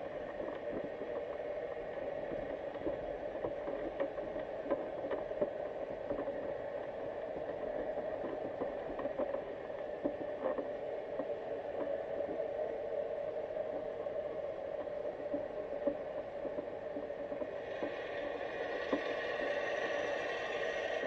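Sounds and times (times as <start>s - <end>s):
dull underwater hum: 0.0s - 21.0s
faint clicks and ticks: 0.0s - 21.0s.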